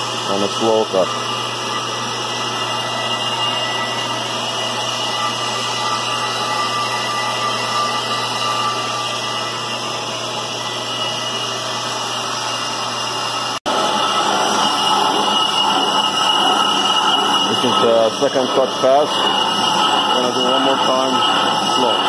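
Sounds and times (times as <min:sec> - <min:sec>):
brake lathe whirring hiss: 0:00.0 - 0:22.0.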